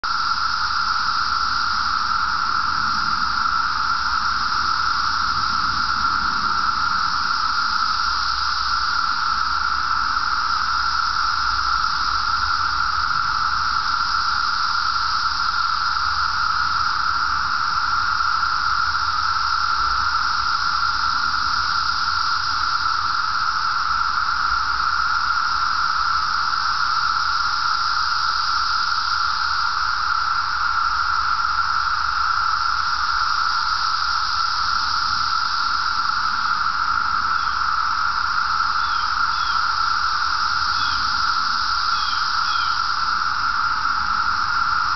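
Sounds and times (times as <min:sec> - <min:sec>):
cicadas droning: 0:00.0 - 0:44.9.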